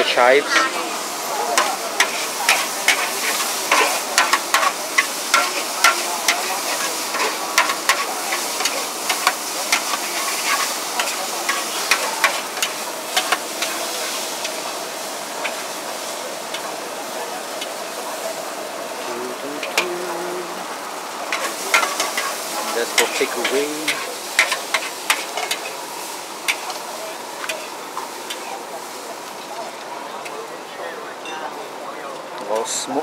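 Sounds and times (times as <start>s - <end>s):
gas flame roaring: 0.0s - 29.1s
noodles sizzling in a wok: 0.0s - 30.2s
spatula scraping a wok: 1.6s - 14.6s, 21.3s - 25.8s.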